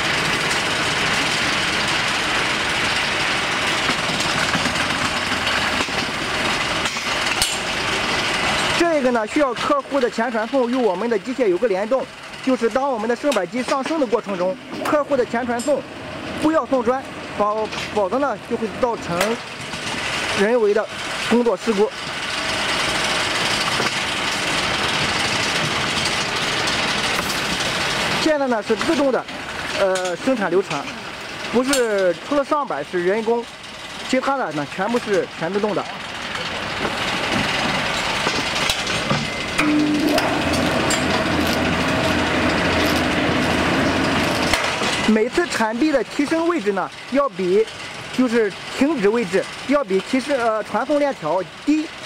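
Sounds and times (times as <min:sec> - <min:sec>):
chain conveyor running: 0:00.0 - 0:52.0.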